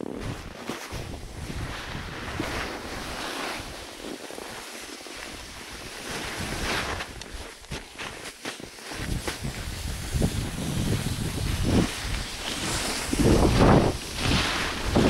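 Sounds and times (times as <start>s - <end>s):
wind on microphone: 0.0s - 4.1s, 9.0s - 15.0s
skis sliding over snow: 0.0s - 15.0s.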